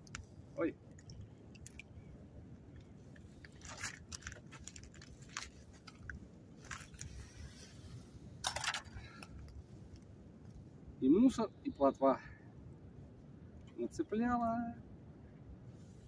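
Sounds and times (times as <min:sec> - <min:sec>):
low steady rumble: 0:00.0 - 0:16.0
crunching and rustling: 0:03.1 - 0:07.4.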